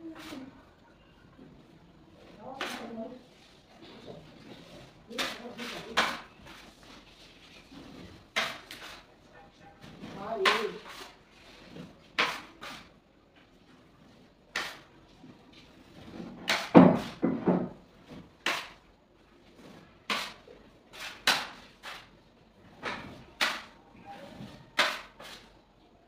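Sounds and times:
putty knife scraping a tray: 12.2s - 12.9s, 20.1s - 22.1s, 23.4s - 25.5s.

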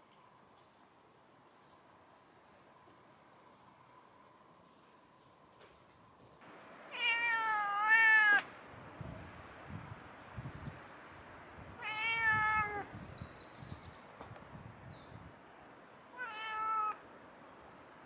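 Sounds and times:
cat meowing: 6.9s - 8.5s, 11.8s - 12.9s, 16.1s - 17.0s
small birds chirping: 10.4s - 11.4s, 12.8s - 14.2s.

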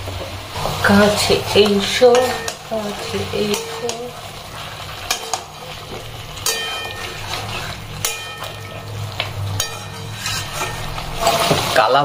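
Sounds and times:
frying hiss: 0.0s - 12.0s
metal utensil knocking on pan: 1.6s - 2.7s, 3.4s - 4.1s, 5.0s - 7.4s, 8.0s - 11.6s.

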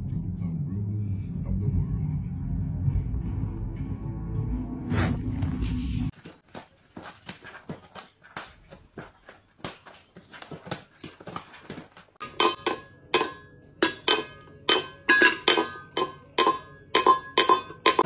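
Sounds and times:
metal food bowl clanking: 12.2s - 18.0s.

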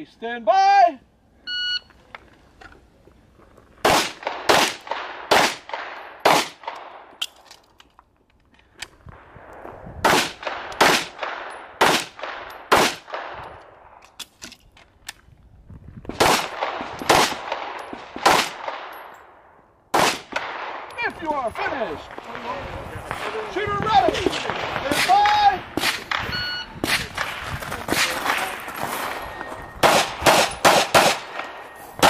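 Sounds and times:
pistol shots with echo: 3.8s - 7.1s, 10.0s - 13.4s, 16.2s - 19.1s, 19.9s - 21.0s, 22.0s - 27.4s, 29.8s - 31.7s
shot timer beep: 26.2s - 26.8s.

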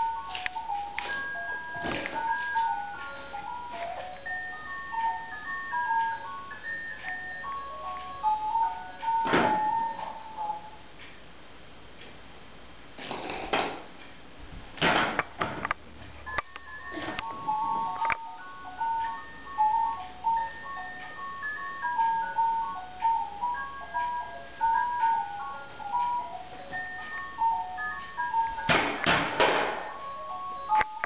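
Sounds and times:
toy beeping melody: 0.0s - 10.8s, 16.3s - 28.7s, 29.8s - 31.0s.

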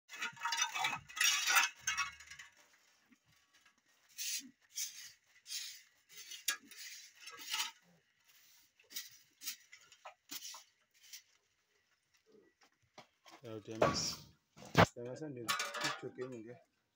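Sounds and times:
pig snuffling and rooting: 0.1s - 13.3s
pig scuffling: 0.1s - 13.6s.

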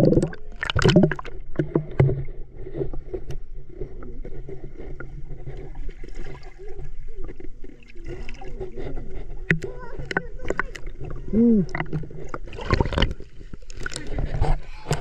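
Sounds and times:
water splash: 0.0s - 2.3s, 10.2s - 15.0s
muffled underwater gurgling and sloshing: 0.0s - 15.0s
small underwater clicks and knocks: 0.0s - 15.0s.

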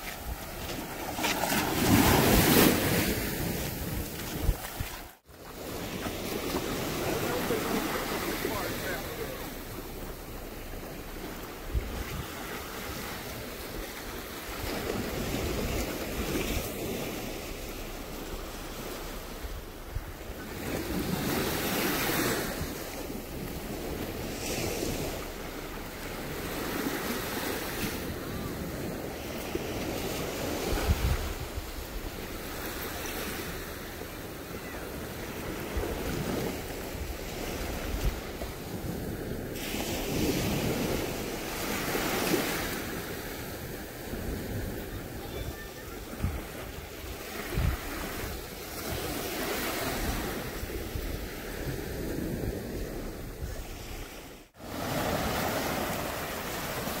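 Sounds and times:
surf washing on a beach: 0.0s - 57.0s
wind buffeting microphone: 0.0s - 57.0s.

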